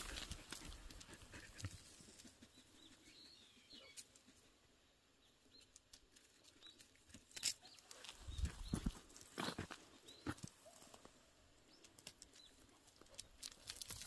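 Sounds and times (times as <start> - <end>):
dog paws scuffing on road: 0.0 - 2.3, 6.1 - 11.2
bird chirps: 2.5 - 4.1.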